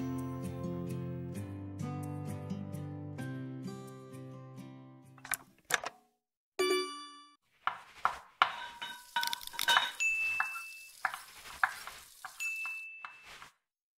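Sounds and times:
scraping: 7.6s - 13.6s
dishes and utensils clattering: 8.4s - 13.3s.

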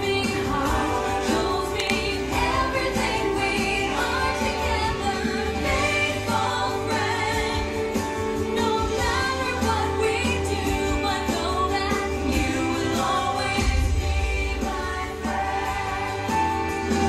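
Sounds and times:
theme song with sung vocals: 0.0s - 17.0s.

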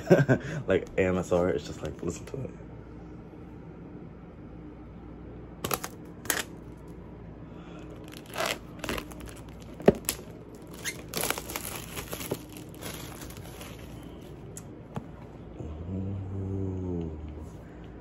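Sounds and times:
plastic wrap tearing and crinkling: 5.6s - 6.6s, 8.0s - 14.3s.

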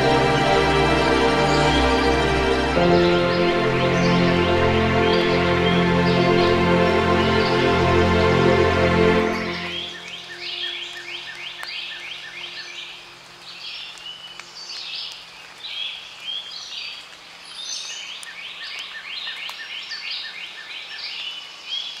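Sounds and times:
high chirping calls: 9.3s - 13.0s.

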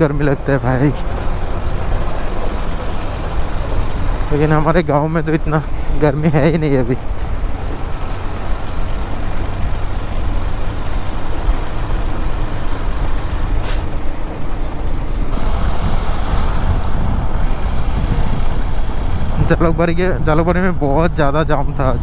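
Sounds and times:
motorcycle engine: 0.0s - 21.2s
surrounding traffic: 0.0s - 22.0s
wind rushing over microphone: 0.0s - 22.0s
short hiss: 13.6s - 13.9s.

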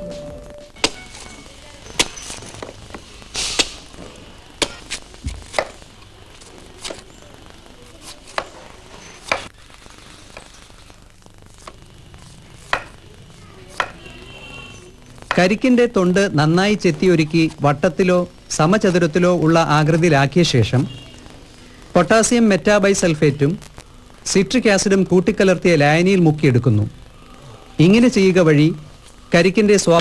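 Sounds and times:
knife chopping coconut husk: 4.6s - 5.8s.

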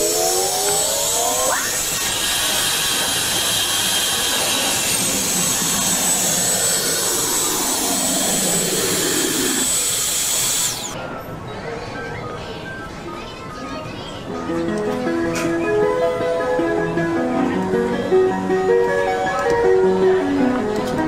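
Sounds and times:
machine motor running: 0.0s - 11.0s
thin high whine: 0.0s - 11.0s.

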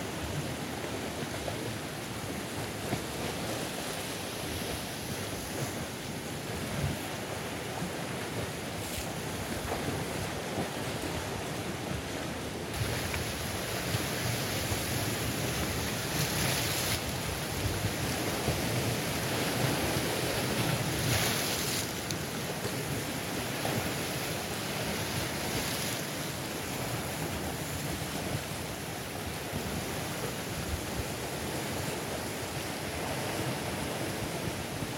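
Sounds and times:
surf breaking over rocks: 12.7s - 28.0s.

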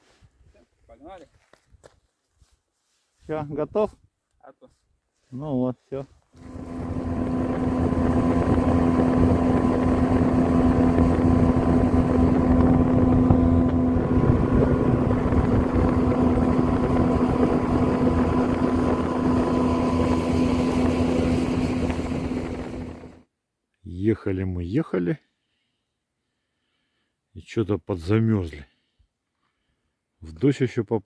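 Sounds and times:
outboard motor drone: 6.4s - 23.2s.

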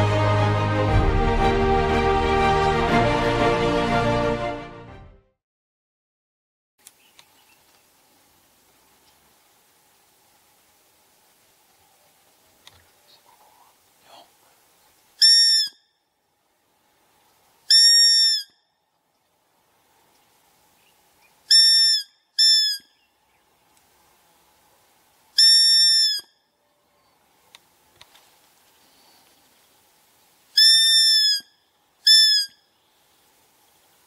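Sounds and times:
deer call whistles: 15.2s - 15.9s, 17.7s - 18.6s, 21.5s - 22.9s, 25.4s - 26.4s, 30.6s - 32.7s.

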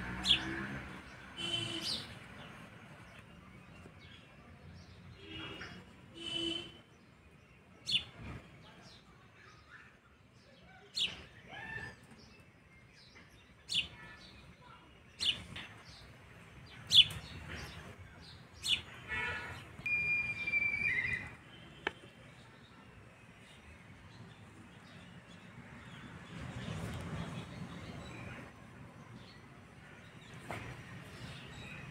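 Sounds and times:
small birds chirping: 0.0s - 31.9s
bird call with held high note: 19.8s - 21.4s.

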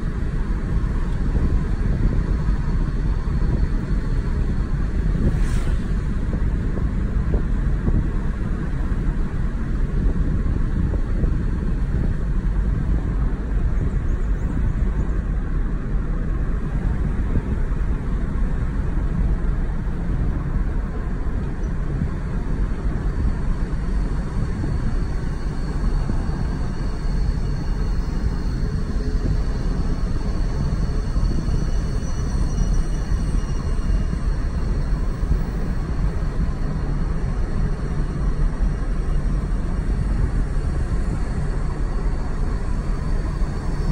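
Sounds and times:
car cruising from inside cabin: 0.0s - 43.9s.

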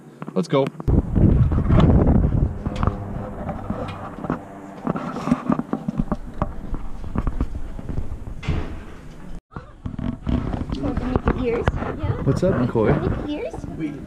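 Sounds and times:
footsteps: 0.8s - 9.4s.

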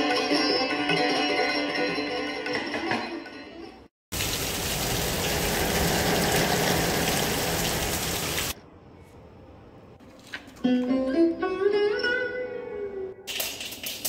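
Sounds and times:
heavy rain pouring: 4.1s - 8.6s.

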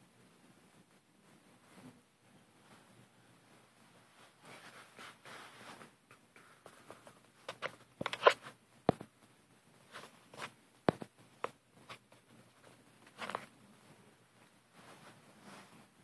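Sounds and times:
camera handling rustles: 7.5s - 8.5s.

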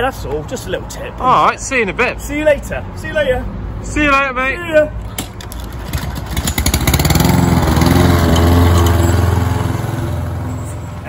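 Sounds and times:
lawn mower cutting grass: 5.9s - 11.0s.

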